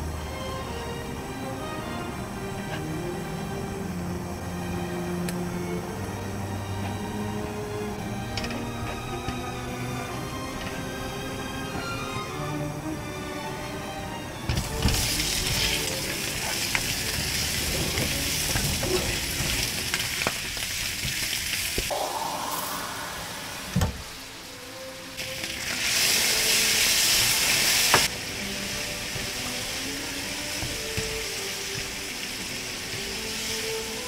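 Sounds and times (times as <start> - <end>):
chicken sizzling in a pan: 14.7 - 22.0, 23.2 - 34.0.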